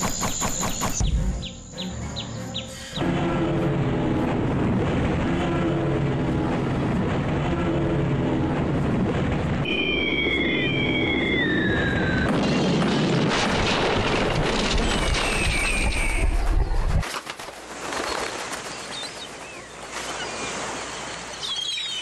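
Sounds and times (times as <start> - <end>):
high whistling tone: 9.6 - 12.3.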